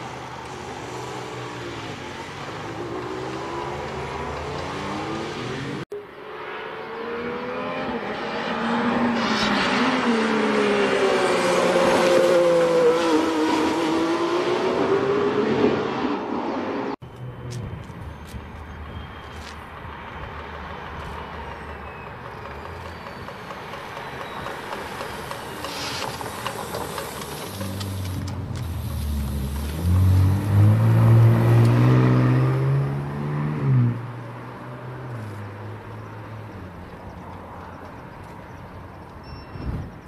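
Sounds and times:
car engine passing by: 25.3s - 36.9s.

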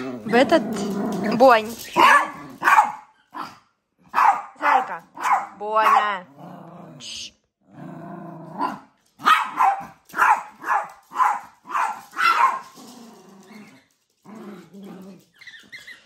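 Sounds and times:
dog growling: 0.0s - 2.7s, 6.2s - 8.9s, 12.6s - 15.4s
dog barking sharply: 2.0s - 3.5s, 4.1s - 6.1s, 9.2s - 12.6s.

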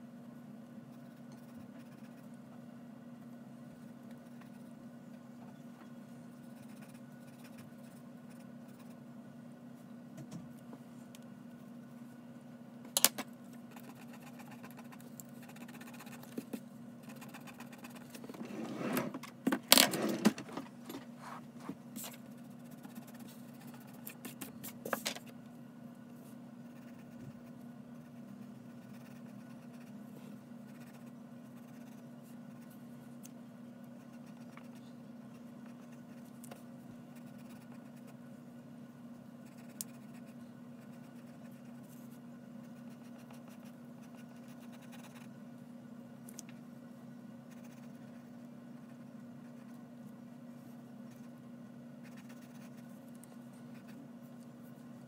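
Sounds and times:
pencil scratching on paper: 0.9s - 2.3s, 6.4s - 9.0s, 22.0s - 24.4s, 26.7s - 30.0s, 30.7s - 32.7s, 47.5s - 49.8s, 52.0s - 52.9s
paper scraping and rustling: 18.3s - 19.2s.

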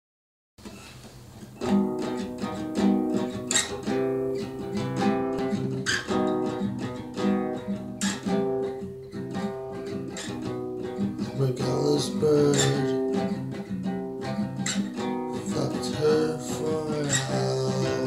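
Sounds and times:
faint hiss: 0.6s - 7.0s
acoustic guitar strumming chords: 0.6s - 18.0s.

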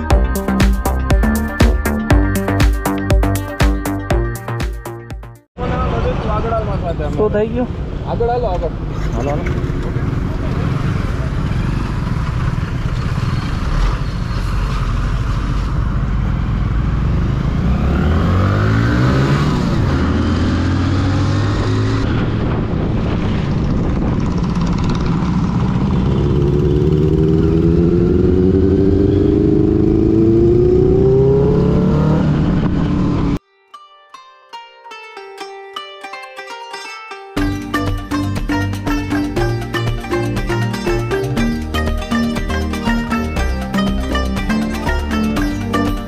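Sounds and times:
motorcycle engine accelerating: 9.3s - 33.4s.

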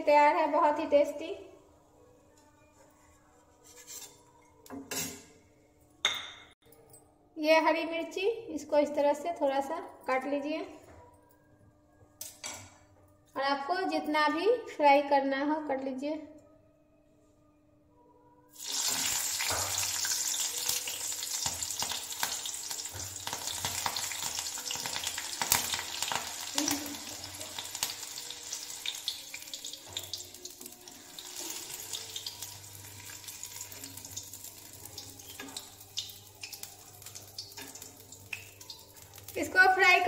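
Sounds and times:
chillies sizzling in hot oil: 18.5s - 40.0s
oil crackling and popping: 18.6s - 39.4s.

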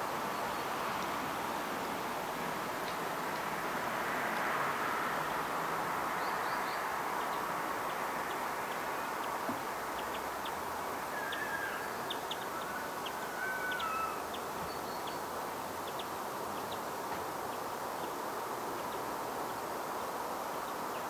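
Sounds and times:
steady background hiss: 0.0s - 21.0s
small birds calling: 6.2s - 18.2s.

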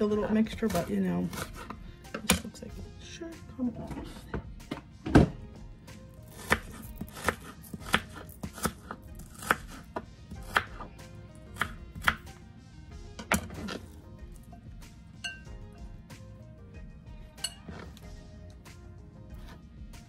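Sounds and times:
knife chopping on plastic board: 6.3s - 10.9s, 11.5s - 12.3s.

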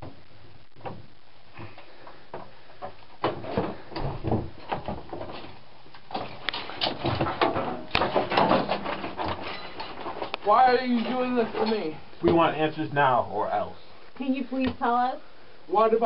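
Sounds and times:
bumps and scrapes: 0.0s - 12.6s
quiet hiss: 0.0s - 16.0s.

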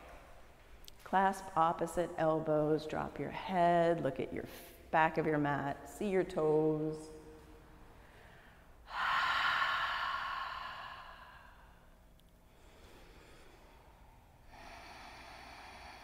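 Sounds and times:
person exhaling: 8.0s - 11.9s, 12.5s - 16.0s.

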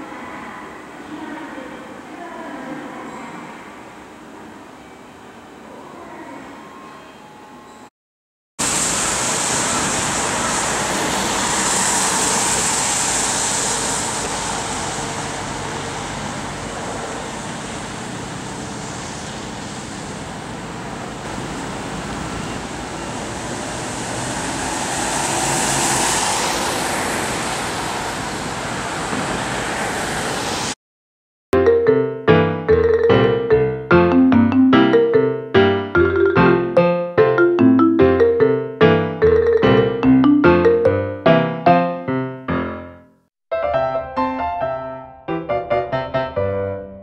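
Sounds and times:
tyres hissing on wet road: 8.6s - 30.8s
cars passing: 21.3s - 30.8s.

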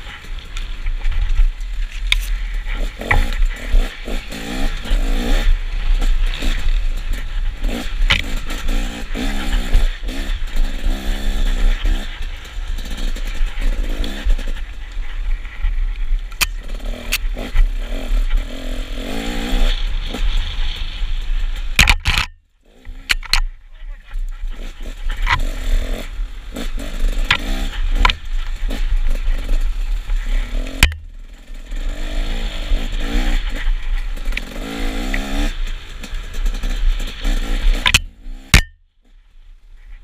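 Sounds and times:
dirt bike engine revving: 2.1s - 38.8s
sharp knock: 37.9s - 38.8s.

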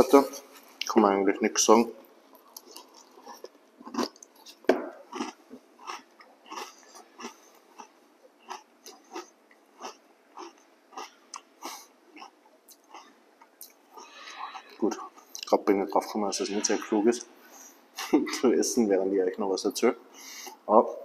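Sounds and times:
person chewing crunchy cereal: 2.3s - 15.5s.

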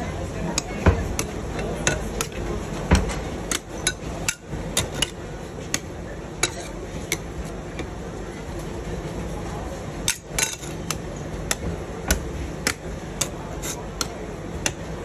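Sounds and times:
metal spatulas tapping on pan: 0.6s - 7.3s.

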